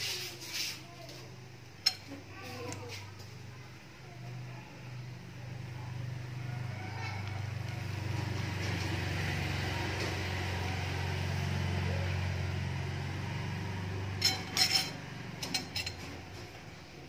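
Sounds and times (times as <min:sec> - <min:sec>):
kitchenware clinking: 0:01.8 - 0:03.0, 0:14.1 - 0:16.6.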